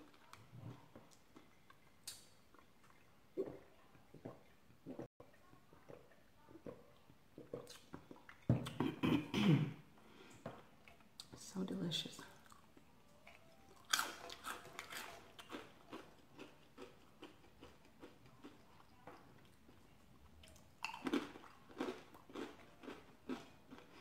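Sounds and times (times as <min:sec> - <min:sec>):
person crunching corn chips: 0:13.8 - 0:18.6, 0:20.8 - 0:24.0.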